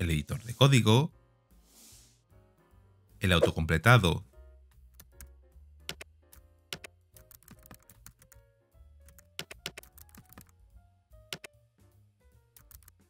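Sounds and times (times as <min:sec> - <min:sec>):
quiet background music: 0:00.0 - 0:13.0
keyboard typing: 0:05.9 - 0:06.1, 0:06.7 - 0:08.4, 0:09.0 - 0:10.6, 0:12.6 - 0:13.0.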